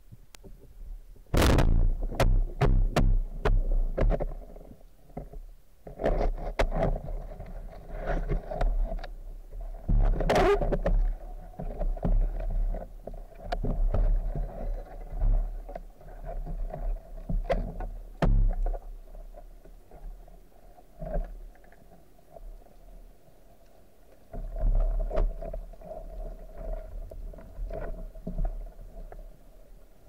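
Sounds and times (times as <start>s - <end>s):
underwater rumble: 0.0s - 30.0s
clicks and knocks against rock: 1.3s - 9.2s, 9.8s - 18.9s.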